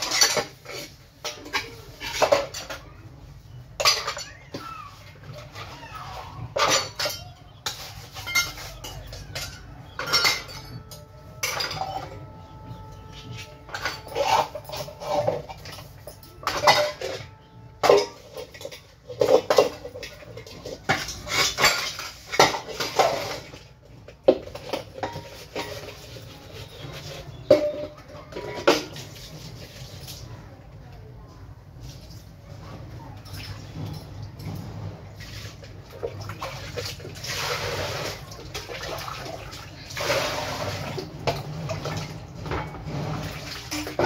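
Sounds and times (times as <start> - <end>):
metal pots clattering while scrubbed: 0.0 - 30.3, 31.6 - 44.0
metal vessel ringing: 6.6 - 7.6, 8.2 - 22.7.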